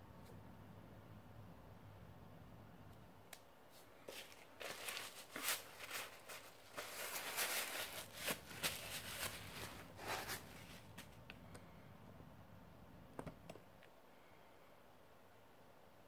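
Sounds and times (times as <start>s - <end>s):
handling rustling and scraping: 3.7s - 11.3s.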